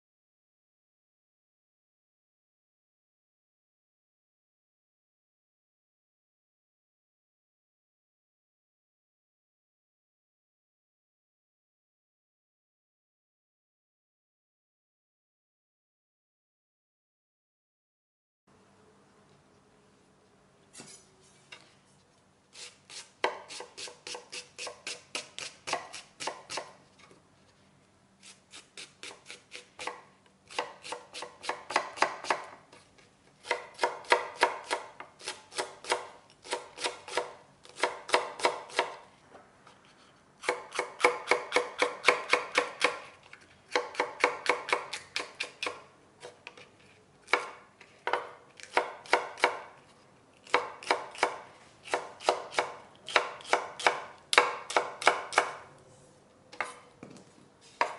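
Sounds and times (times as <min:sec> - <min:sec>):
knife chopping on wooden board: 0:29.0 - 0:32.6, 0:40.4 - 0:43.0, 0:47.3 - 0:49.7, 0:50.5 - 0:55.6, 0:56.6 - 0:57.2.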